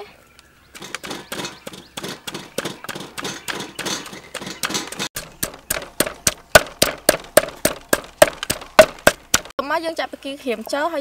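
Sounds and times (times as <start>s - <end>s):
wooden pestle pounding in mortar: 0.9s - 9.5s.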